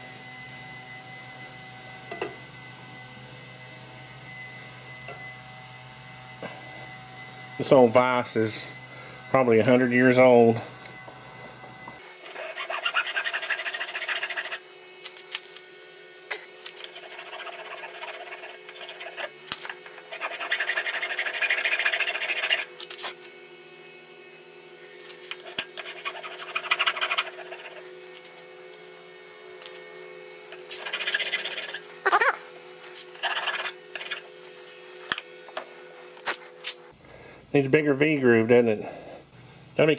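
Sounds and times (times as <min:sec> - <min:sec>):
hand file rasping on metal: 0:12.2 - 0:14.6, 0:16.6 - 0:23.2, 0:25.2 - 0:28.2, 0:30.5 - 0:31.9, 0:33.0 - 0:34.3.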